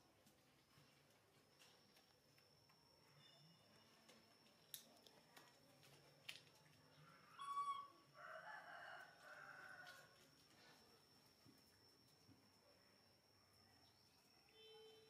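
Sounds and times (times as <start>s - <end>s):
faint rooster crow: 7.0s - 10.8s.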